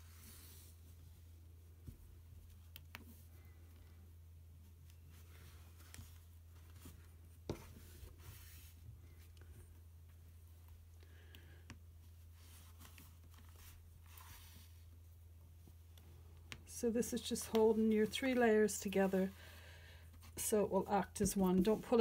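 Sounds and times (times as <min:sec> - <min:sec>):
fabric rustling and scratching: 0:04.6 - 0:10.5, 0:12.0 - 0:15.8.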